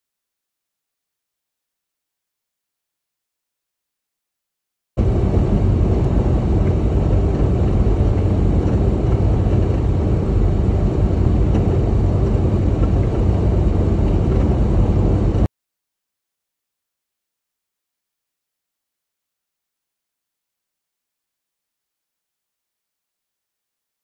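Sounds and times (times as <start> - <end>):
truck driving on road: 5.0 - 15.5.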